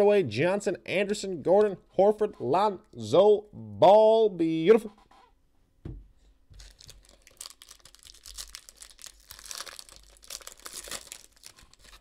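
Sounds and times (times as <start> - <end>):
soft thump: 5.8 - 6.1
foil pack tearing and crinkling: 6.6 - 12.0.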